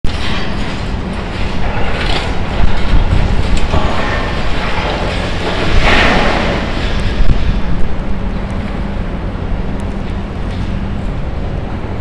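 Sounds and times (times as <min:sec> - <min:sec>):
debris crunching and scraping: 0:00.1 - 0:08.9
excavator engine rumble: 0:00.1 - 0:12.0.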